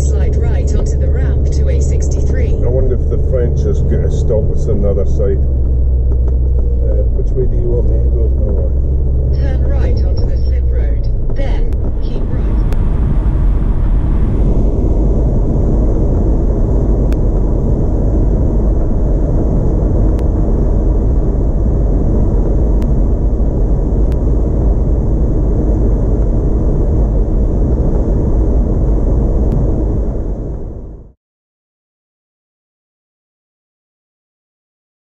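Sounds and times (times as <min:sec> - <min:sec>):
engine and road noise: 0:00.0 - 0:31.2.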